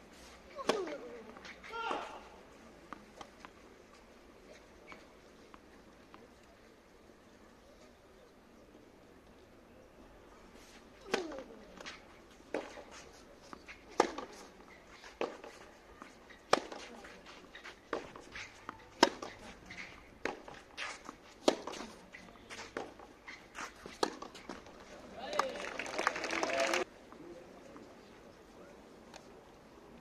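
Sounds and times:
racket striking tennis ball: 0:00.5 - 0:02.1, 0:11.0 - 0:13.0, 0:13.6 - 0:14.5, 0:16.3 - 0:17.0, 0:17.9 - 0:24.7.

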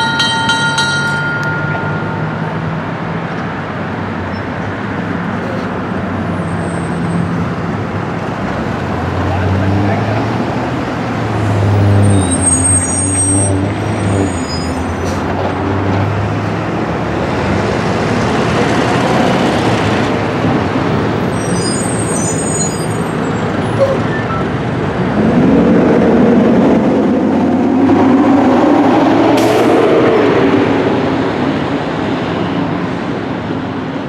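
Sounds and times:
high squealing: 0:11.7 - 0:15.1, 0:21.2 - 0:24.5.

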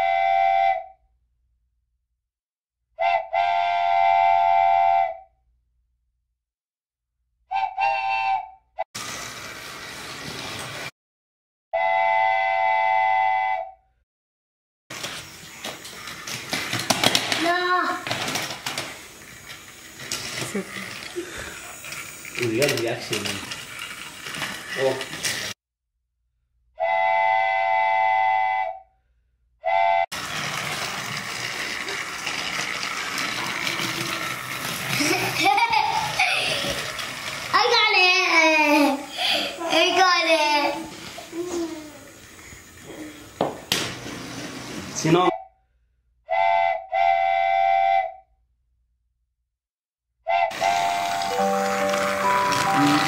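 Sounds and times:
steam train whistle: 0:00.0 - 0:01.0, 0:03.0 - 0:05.3, 0:07.5 - 0:08.6, 0:11.8 - 0:13.8, 0:26.8 - 0:28.9, 0:29.6 - 0:30.1, 0:46.3 - 0:48.2, 0:50.3 - 0:53.0
toy train whirring and clattering: 0:08.9 - 0:10.9, 0:14.9 - 0:25.6, 0:30.1 - 0:45.2, 0:50.5 - 0:53.0
steam hissing: 0:09.0 - 0:10.9, 0:18.7 - 0:25.6, 0:38.8 - 0:45.0
small clicks and rattles: 0:15.0 - 0:25.6, 0:30.2 - 0:38.1.

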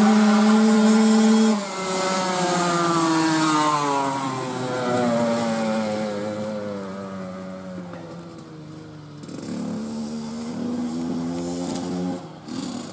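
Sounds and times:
dirt bike engine revving: 0:00.0 - 0:12.9.

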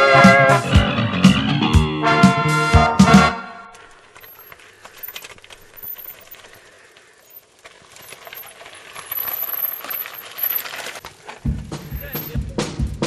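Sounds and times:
bike frame and chain clattering: 0:03.7 - 0:13.0
tyres crunching over stones: 0:03.8 - 0:13.0.

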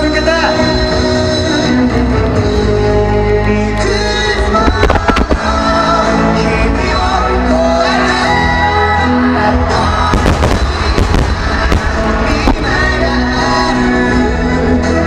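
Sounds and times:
music playing: 0:00.0 - 0:15.0
fireworks bursting and crackling: 0:04.5 - 0:05.8, 0:09.8 - 0:14.0.

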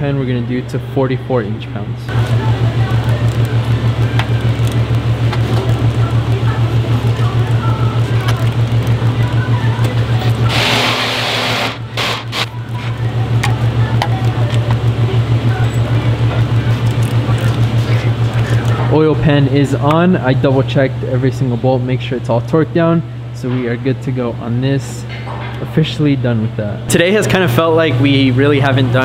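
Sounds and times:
pulsing low hum: 0:01.8 - 0:22.0.

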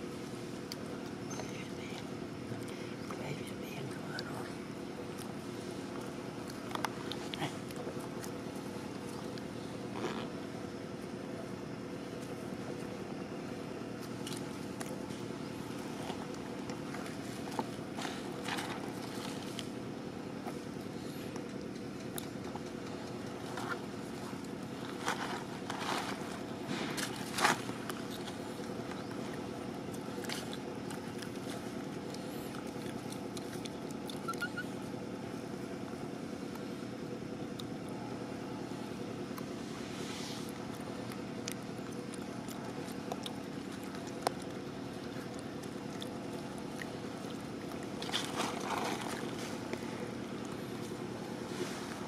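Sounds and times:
low background hum: 0:00.0 - 0:52.0
rustling: 0:23.3 - 0:29.4, 0:47.6 - 0:52.0.

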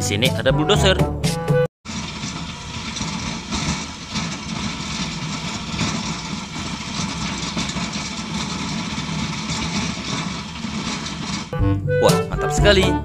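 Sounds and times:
snow rushing off plow blade: 0:01.9 - 0:11.6
engine rumble: 0:01.9 - 0:12.5.

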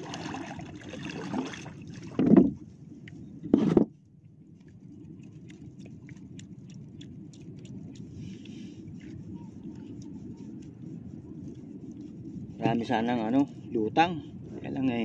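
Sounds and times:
wind and water rushing: 0:00.0 - 0:04.0.

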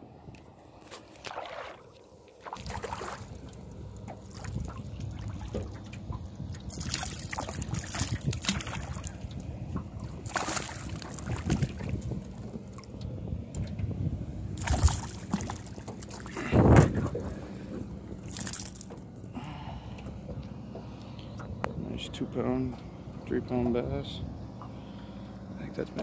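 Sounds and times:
fish splashing in water: 0:01.0 - 0:13.0, 0:14.6 - 0:17.6
wind rumbling on microphone: 0:02.6 - 0:18.6.

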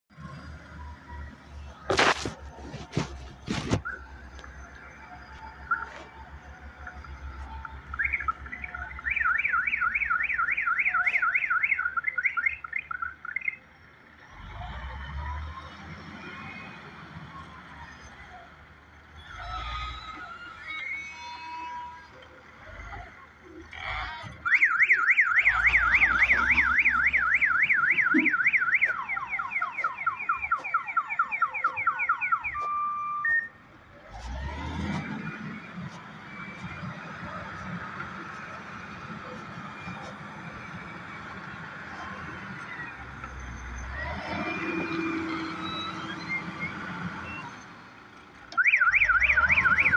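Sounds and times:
warbling electronic alarm: 0:24.5 - 0:33.6, 0:48.6 - 0:49.9.

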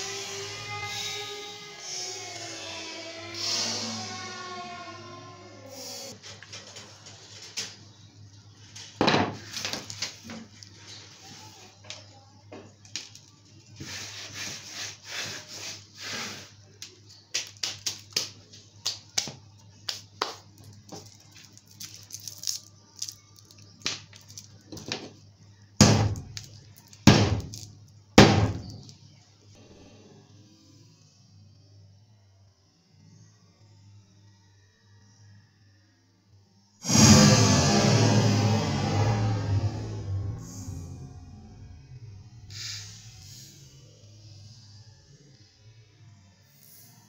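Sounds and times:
candy cracking: 0:20.5 - 0:24.9.

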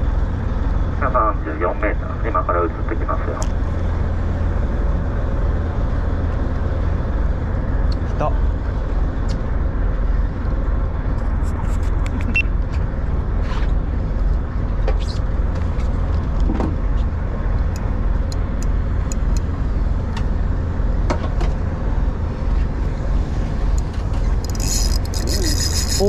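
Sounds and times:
boat engine rumble: 0:00.0 - 0:26.0
fishing reel clicks: 0:24.3 - 0:26.0.

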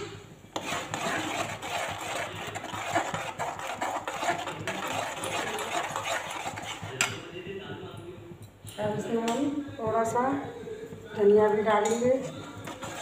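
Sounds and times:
metal spoon scraping steel pan: 0:00.0 - 0:07.2, 0:11.8 - 0:13.0.

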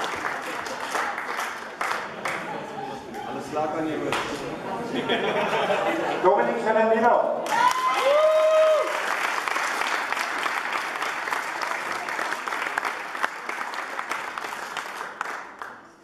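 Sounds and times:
crowd applauding: 0:00.0 - 0:03.2, 0:07.4 - 0:16.0.

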